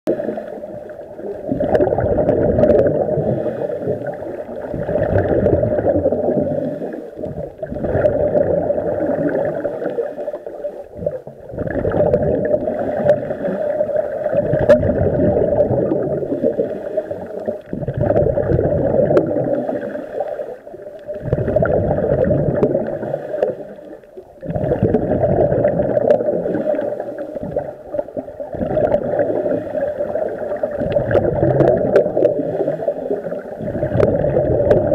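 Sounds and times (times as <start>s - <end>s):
underwater regulator bubbles: 0.1s - 34.9s.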